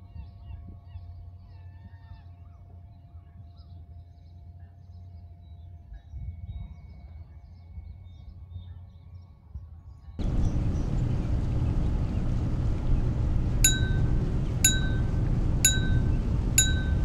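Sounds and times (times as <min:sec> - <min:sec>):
low steady rumble: 0:10.2 - 0:17.0.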